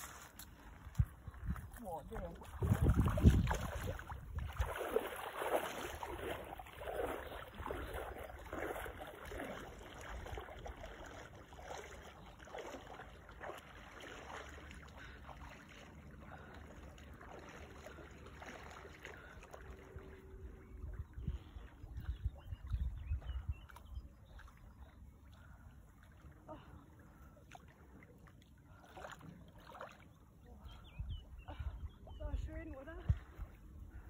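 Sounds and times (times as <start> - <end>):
swimming in water: 0.0 - 34.0
wading splashes in water: 0.0 - 34.0
low wind rumble on microphone: 0.8 - 5.0, 20.2 - 24.1, 30.7 - 34.0.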